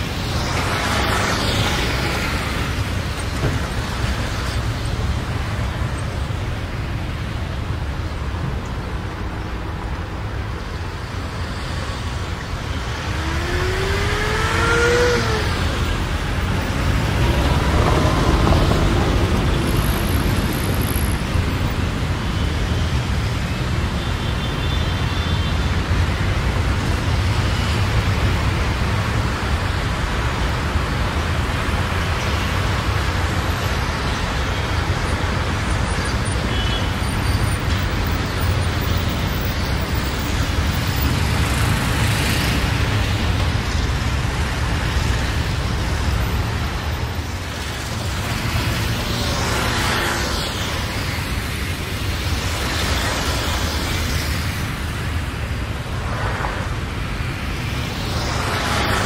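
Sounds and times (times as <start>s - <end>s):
vehicle engines rumbling: 0.0s - 59.0s
rising whine: 12.8s - 21.3s.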